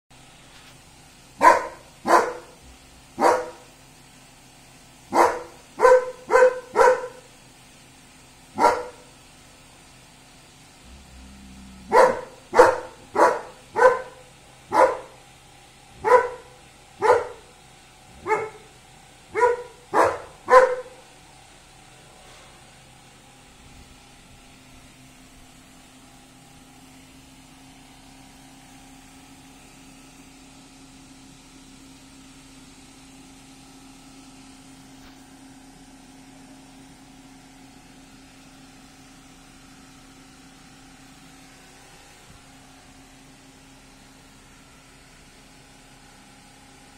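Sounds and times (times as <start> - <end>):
dog barking: 1.4 - 2.6, 3.2 - 3.7, 5.1 - 7.3, 8.6 - 9.1, 11.9 - 15.2, 16.0 - 17.5, 18.2 - 21.0.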